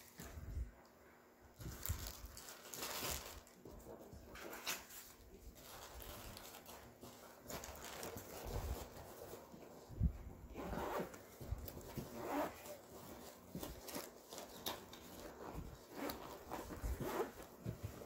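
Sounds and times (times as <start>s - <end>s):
plastic bags rustling: 1.6s - 9.9s, 10.8s - 18.0s
zipper being worked: 10.5s - 18.0s.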